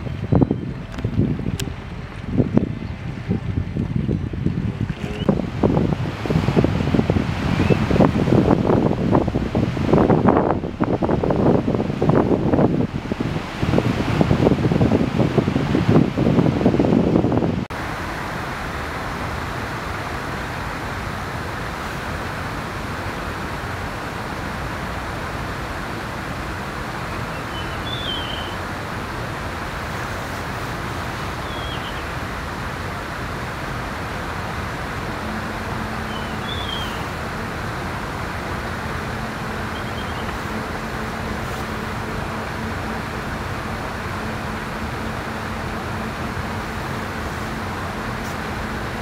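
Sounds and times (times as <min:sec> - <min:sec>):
faint low hum: 0:00.0 - 0:16.2
rushing outdoor noise: 0:00.0 - 0:49.0
high bird chirps: 0:27.1 - 0:28.6, 0:31.4 - 0:32.1, 0:36.0 - 0:37.1, 0:39.7 - 0:40.4.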